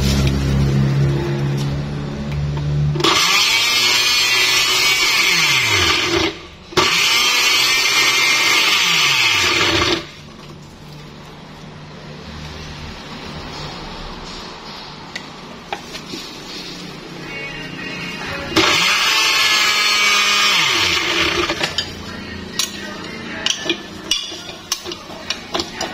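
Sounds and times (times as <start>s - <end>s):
blender churning fruit and ice: 3.0s - 10.2s, 18.6s - 21.8s.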